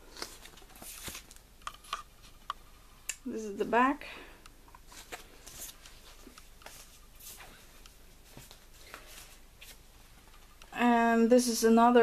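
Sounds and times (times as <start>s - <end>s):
record sleeve rustling: 0.0s - 2.7s, 4.8s - 10.6s.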